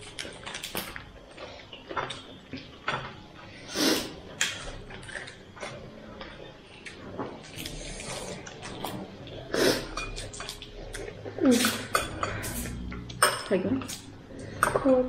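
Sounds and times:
clicks and crunches of eating: 0.0 - 3.5, 4.2 - 9.5.

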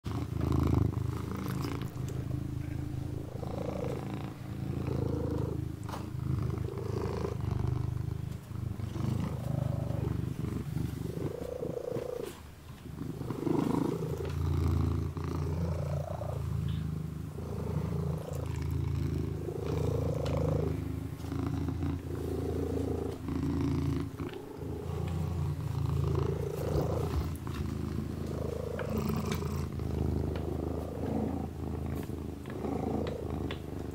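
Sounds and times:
kitten purring: 0.0 - 33.9
soft licking: 1.1 - 2.3, 23.1 - 33.9.

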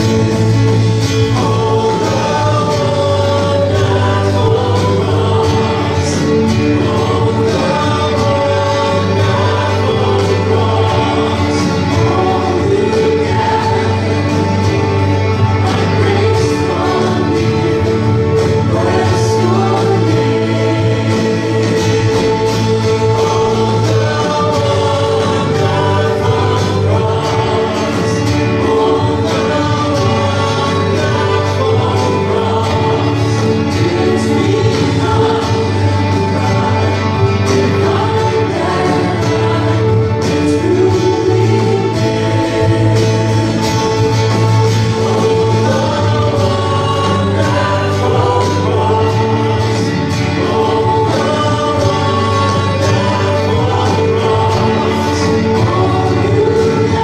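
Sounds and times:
guitar: 0.0 - 57.0
sustained instrumental chords: 0.0 - 57.0
voices singing: 0.0 - 57.0.

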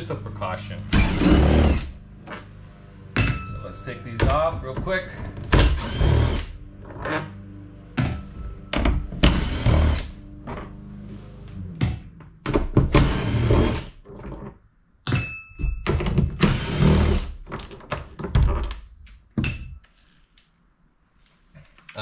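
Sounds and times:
cordless drill running: 0.9 - 2.0, 5.6 - 6.5, 9.2 - 10.1, 13.0 - 13.9, 16.4 - 17.3
drill clunks: 0.9 - 2.5, 3.2 - 7.3, 8.0 - 10.8, 11.8 - 14.5, 15.6 - 17.5.

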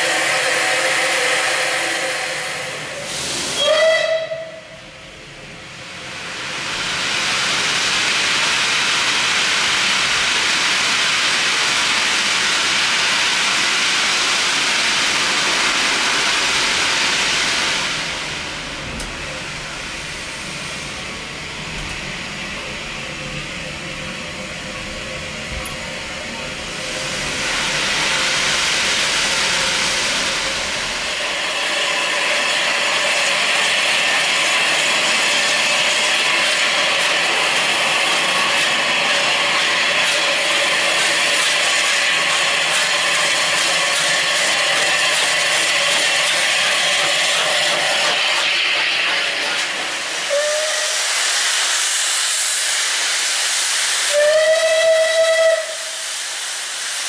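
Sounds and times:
steam locomotive whistle: 0.0 - 4.8, 50.2 - 51.2, 54.1 - 56.1
steam hissing: 0.0 - 57.0.

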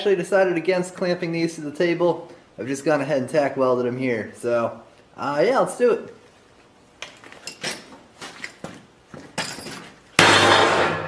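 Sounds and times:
sledgehammer clang on steel: 10.2 - 11.0.

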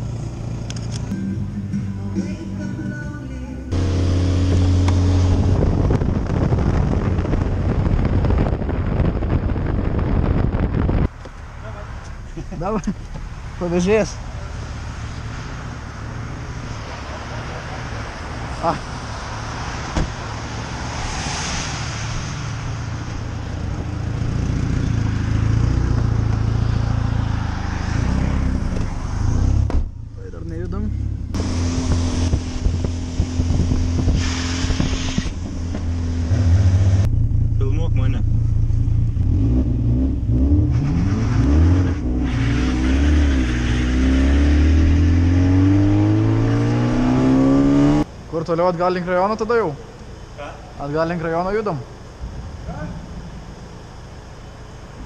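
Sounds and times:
car engine hum: 0.0 - 55.0
road noise: 0.0 - 55.0
wind noise on microphone: 4.2 - 11.2, 31.3 - 37.1.

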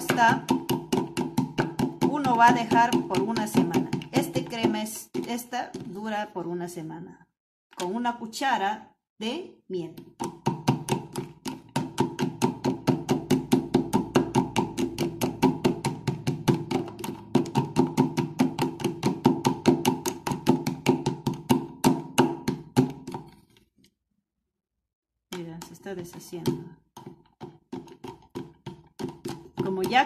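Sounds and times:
spoon stirring tablets in plastic tub: 0.0 - 6.2, 25.4 - 30.0.

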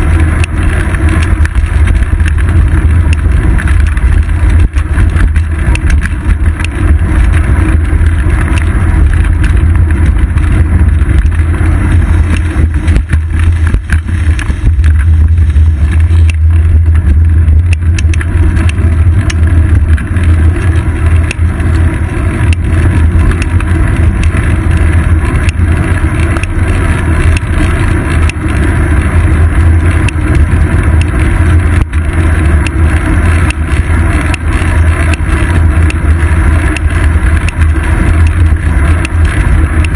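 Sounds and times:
road vibration: 0.0 - 39.9
wind rumble: 0.0 - 39.9.

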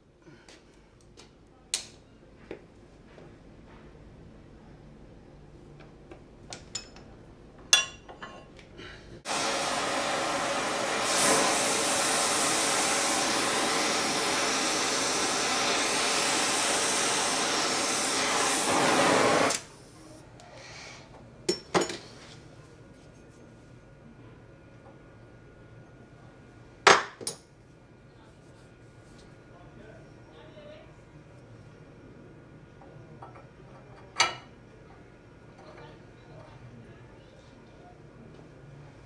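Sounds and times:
gas torch flame hissing: 9.2 - 21.1.

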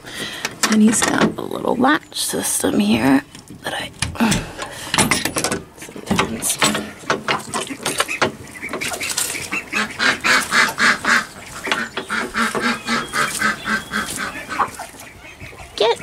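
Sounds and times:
metal latch clicking: 3.4 - 6.9
duck quacking: 7.7 - 16.0.

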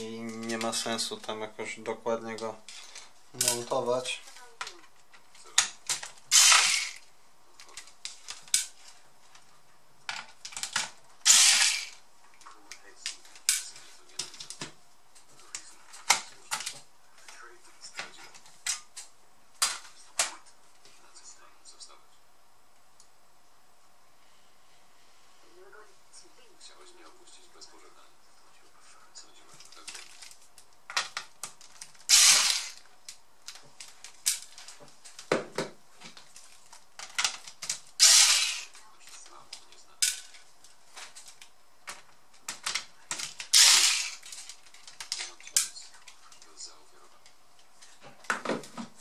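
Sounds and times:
electric screwdriver whirr: 6.3 - 7.0, 11.3 - 12.0, 32.1 - 32.8, 38.0 - 38.7, 43.5 - 44.2.

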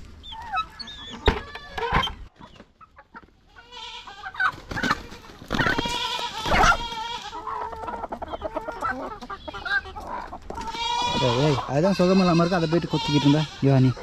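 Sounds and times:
chickens clucking: 0.0 - 14.0
goat bleating: 3.5 - 7.8, 10.6 - 14.0.

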